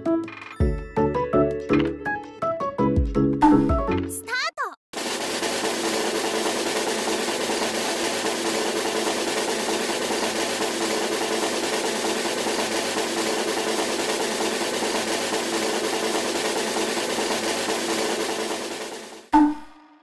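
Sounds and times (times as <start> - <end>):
drum roll: 5.0 - 19.3.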